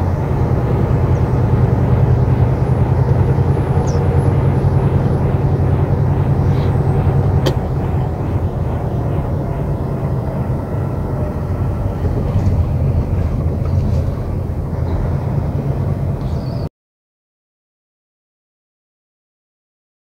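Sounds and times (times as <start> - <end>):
engine and road noise rumble: 0.0 - 16.7.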